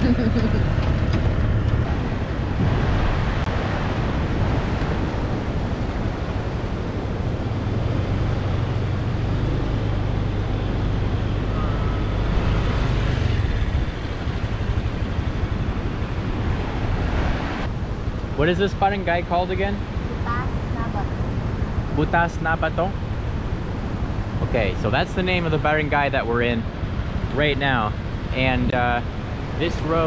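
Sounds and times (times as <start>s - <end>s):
scooter engine running: 0.0s - 1.8s, 7.9s - 16.7s.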